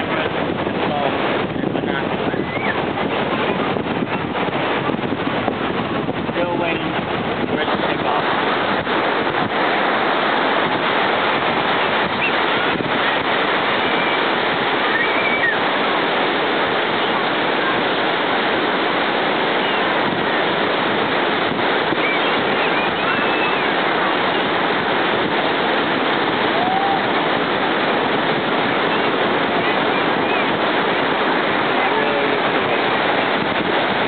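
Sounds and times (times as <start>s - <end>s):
ocean surf breaking: 0.0s - 34.0s
crowd voices: 21.5s - 34.0s.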